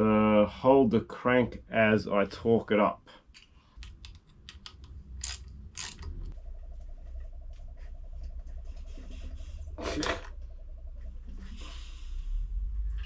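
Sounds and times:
socket ratchet clicking: 3.8s - 6.4s.

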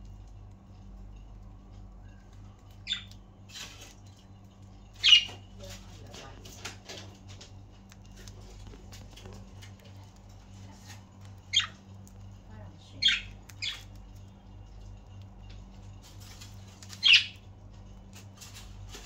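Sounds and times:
budgerigars chirping: 2.8s - 3.1s, 5.0s - 5.4s, 11.4s - 11.8s, 13.0s - 13.9s, 16.9s - 17.4s.

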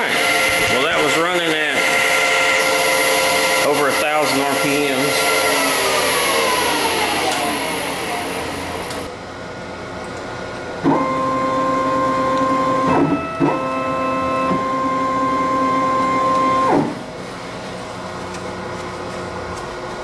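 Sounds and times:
stepper motors whining: 0.0s - 9.1s, 10.8s - 17.0s
low machine hum: 0.0s - 20.0s.

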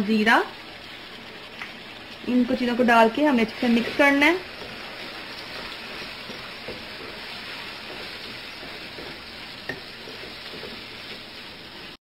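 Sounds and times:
meat sizzling in a wok: 0.0s - 12.0s
spatula tapping on pan: 6.2s - 11.2s.

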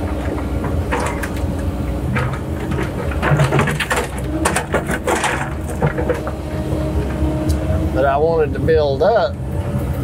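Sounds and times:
excavator running: 0.0s - 10.0s
knocks of rocks being handled: 2.1s - 6.4s.

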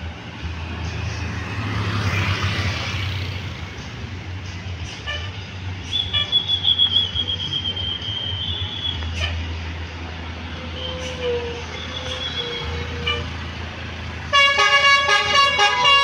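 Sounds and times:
bus diesel engine running: 0.0s - 16.0s
shrill fluttering whistle: 5.9s - 9.0s, 11.8s - 12.8s.

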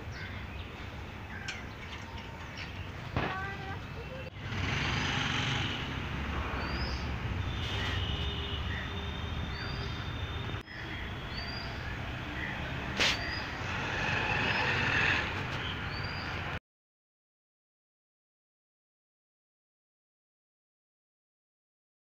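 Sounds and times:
road traffic rumble: 0.0s - 16.6s
bird chirps: 8.7s - 13.6s, 15.6s - 16.4s.

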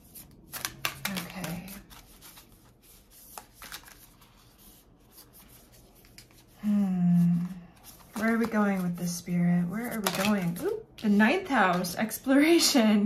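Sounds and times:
cards being shuffled: 0.0s - 6.6s, 7.2s - 10.8s.

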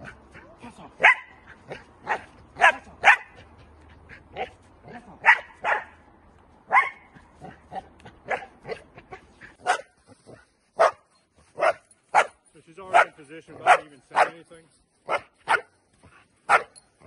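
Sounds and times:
dog barking: 1.0s - 3.4s, 5.2s - 6.0s, 6.7s - 7.1s, 8.2s - 8.8s, 9.6s - 10.0s, 10.8s - 11.0s, 11.6s - 14.4s, 15.1s - 15.7s, 16.5s - 16.8s.

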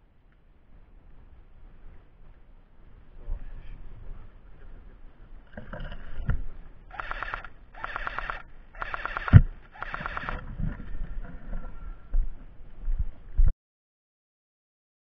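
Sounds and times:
airsoft gun rapid clicking: 6.9s - 10.4s.

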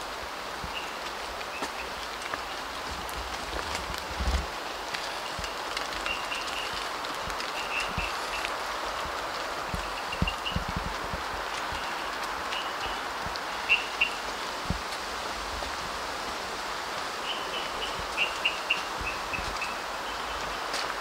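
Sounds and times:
wind through wet foliage: 0.0s - 21.0s.

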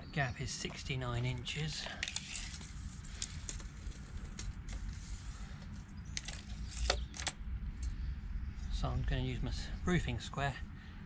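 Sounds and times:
low steady rumble: 0.0s - 11.0s
tape measure clicks and rattles: 1.8s - 5.0s, 6.2s - 7.4s.

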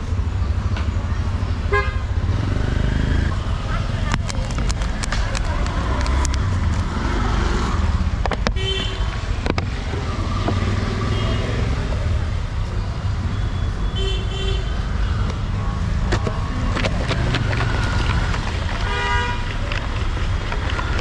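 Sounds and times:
rumble of passing vehicles: 0.0s - 21.0s
car horn toots: 18.8s - 19.6s.

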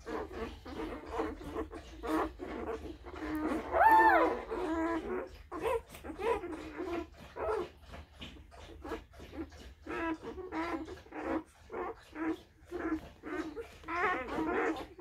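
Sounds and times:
puppies whimpering and squeaking: 0.0s - 15.0s
puppy high rising cry: 0.6s - 7.7s.

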